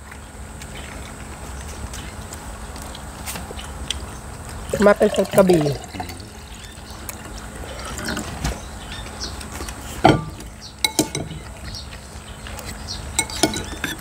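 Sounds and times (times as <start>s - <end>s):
water poured into a glass: 4.7s - 6.4s
spoons clinking ceramic bowls: 10.1s - 11.5s, 13.2s - 14.0s.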